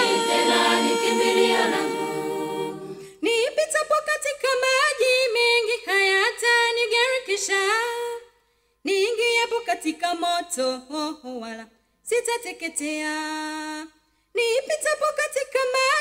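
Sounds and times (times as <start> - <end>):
high solo voice singing: 0.0 - 3.1
choir singing a cappella: 0.0 - 3.4.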